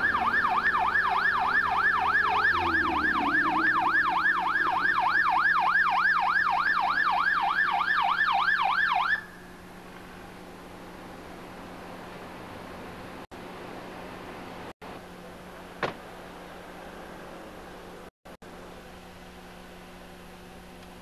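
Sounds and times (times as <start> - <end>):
police siren yelping: 0.0 - 9.6.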